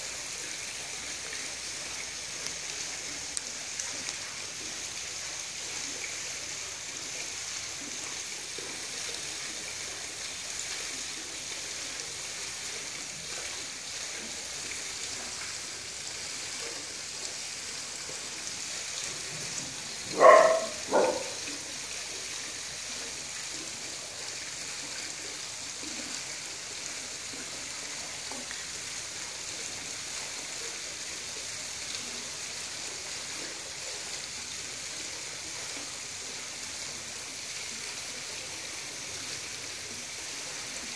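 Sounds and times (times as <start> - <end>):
high outdoor hiss: 0.0 - 40.9
small dog barking: 20.1 - 21.4.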